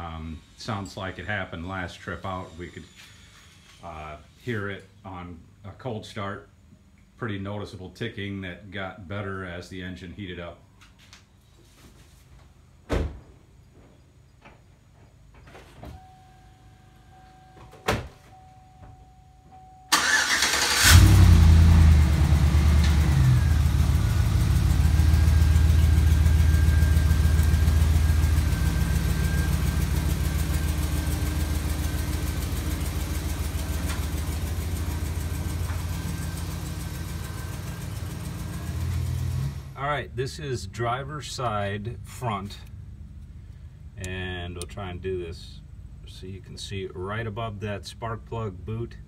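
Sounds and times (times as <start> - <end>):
engine cranking and starting: 19.9 - 24.0
engine idling: 19.9 - 39.8
engine revving: 19.9 - 39.8.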